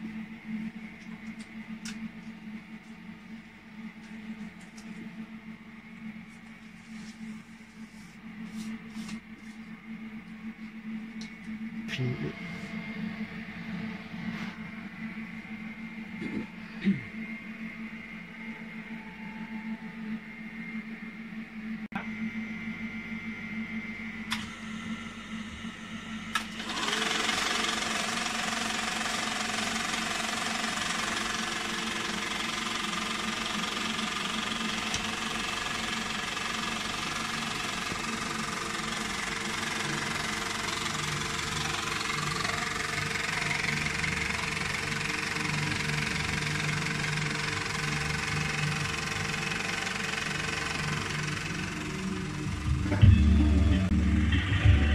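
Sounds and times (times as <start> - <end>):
film projector clatter: 26.3 - 52.7.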